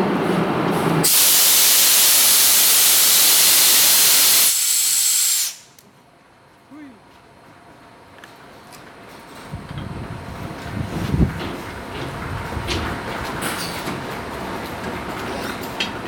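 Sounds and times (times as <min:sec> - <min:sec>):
air brake hose hissing: 0:01.0 - 0:05.8.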